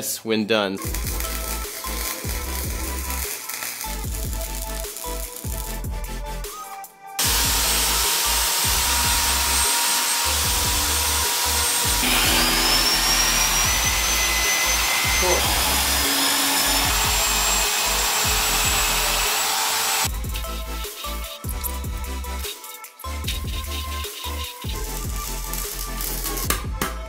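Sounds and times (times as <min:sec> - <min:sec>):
background music: 0:00.0 - 0:27.0
power tool whining: 0:07.2 - 0:21.8.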